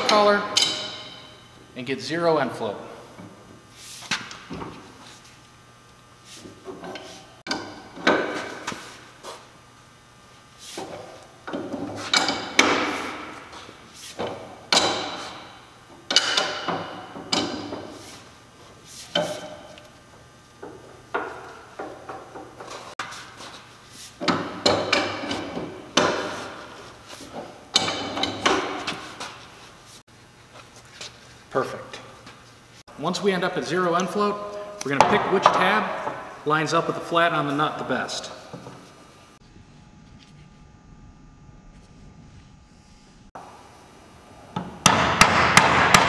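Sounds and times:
wrench clanking on metal: 0.0 - 1.5, 16.1 - 17.9, 24.2 - 26.5, 27.7 - 29.0.

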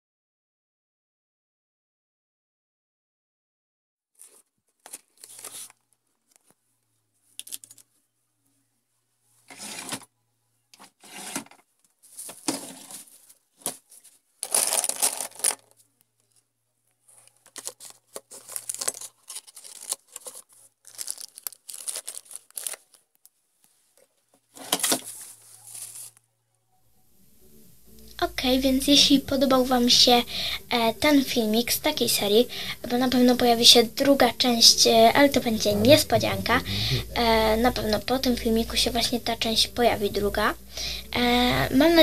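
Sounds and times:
plastic bag crinkling: 4.2 - 6.6, 7.4 - 7.9, 12.1 - 16.4, 17.0 - 26.2
papers and pencils rustling and rattling: 4.2 - 8.0, 9.4 - 10.1, 10.8 - 26.3.

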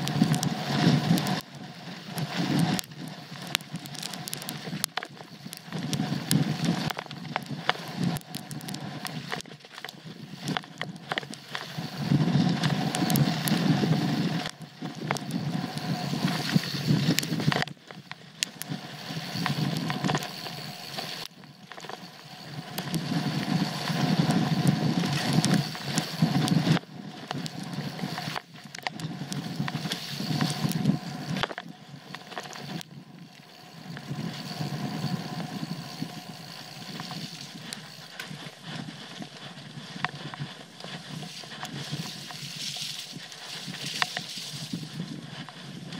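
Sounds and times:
bike tyres rumbling on trail: 0.0 - 45.9
bike rattling and knocking: 22.6 - 45.6.

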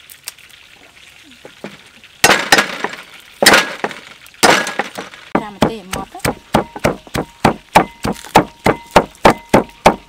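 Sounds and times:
cleaver chopping on wooden block: 2.3 - 10.0.

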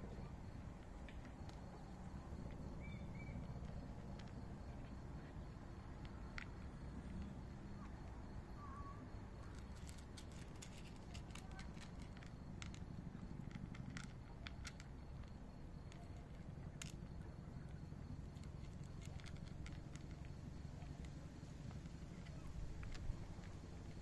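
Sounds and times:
low background rumble: 0.0 - 24.0
cat crunching dry kibble: 9.5 - 15.3, 18.2 - 20.2.

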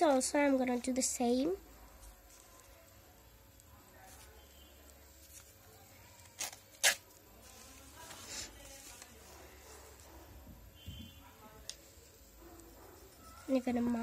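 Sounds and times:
paper ripping: 6.2 - 9.2.

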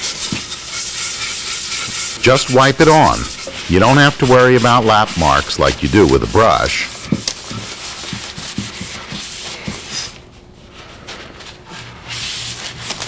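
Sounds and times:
cloth rubbing on wood: 0.4 - 10.2.

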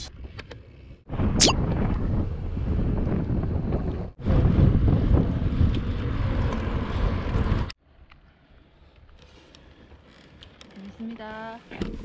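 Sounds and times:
wind buffeting microphone: 1.1 - 7.7.

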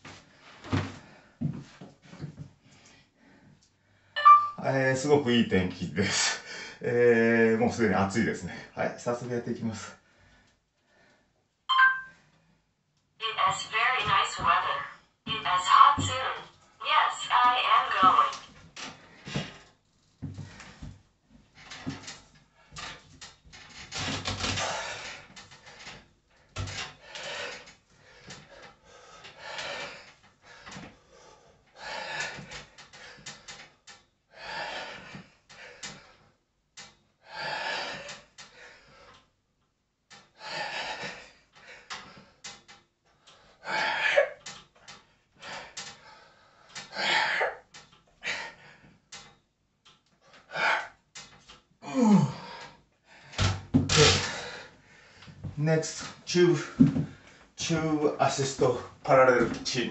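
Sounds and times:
man breathing hard: 6.2 - 6.8, 27.0 - 33.6, 34.3 - 36.3, 37.2 - 39.3, 40.2 - 42.6, 45.4 - 47.6, 50.4 - 51.0, 54.2 - 55.4.

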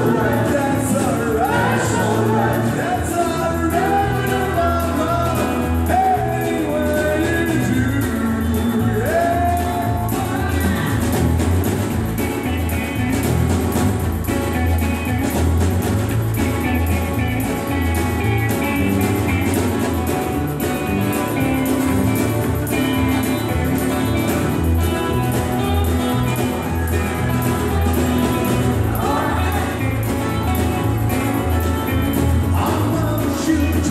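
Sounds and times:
man singing: 0.0 - 11.2, 24.8 - 33.9
country band playing: 0.0 - 33.9.

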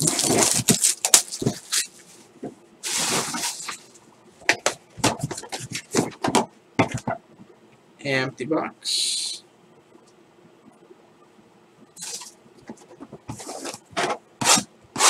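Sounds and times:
cellophane wrap tearing and crinkling: 0.0 - 2.0, 2.8 - 3.9.

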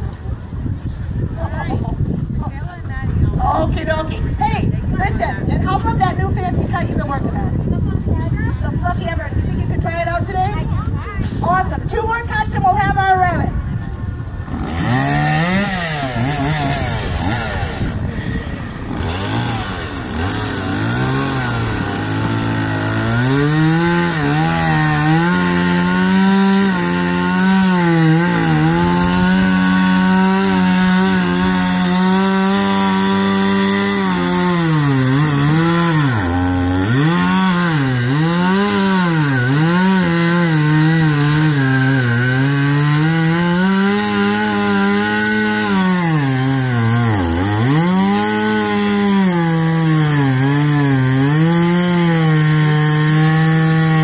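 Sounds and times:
chainsaw cutting log: 14.2 - 54.0.

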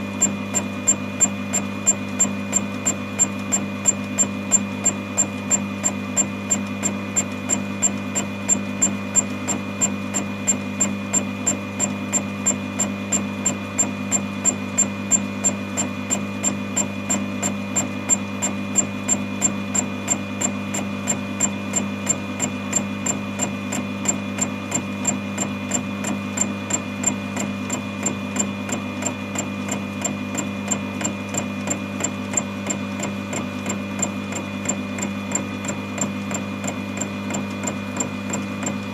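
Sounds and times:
milling machine motor hum: 0.0 - 38.9.

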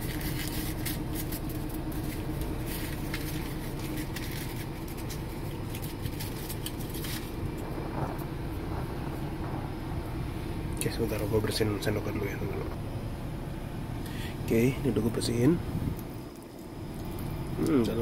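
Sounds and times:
plastic bag rustling: 0.0 - 11.3
car engine idling: 0.0 - 18.0.

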